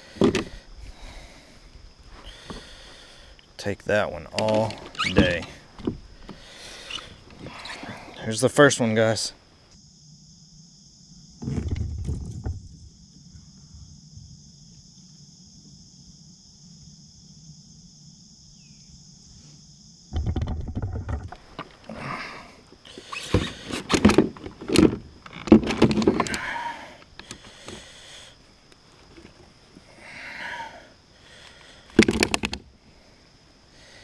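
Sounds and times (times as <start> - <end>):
faint steady hum: 0.0 - 20.2
thumps in plastic kayak: 23.2 - 26.4, 32.0 - 32.6.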